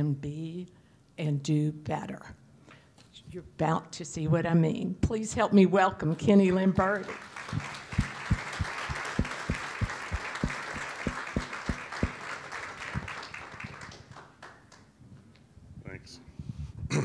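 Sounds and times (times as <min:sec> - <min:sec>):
audience applauding: 0:07.0 - 0:14.8
low thumps: 0:07.5 - 0:12.2, 0:13.0 - 0:13.8.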